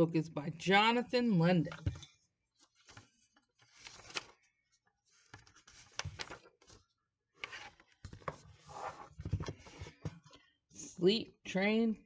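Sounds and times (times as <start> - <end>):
book pages rustling: 1.8 - 10.5.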